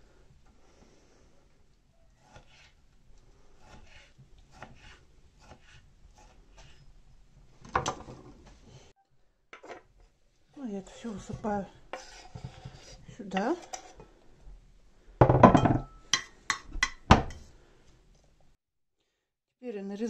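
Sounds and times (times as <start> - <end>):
knife cutting on wooden board: 2.2 - 2.8, 3.6 - 6.8.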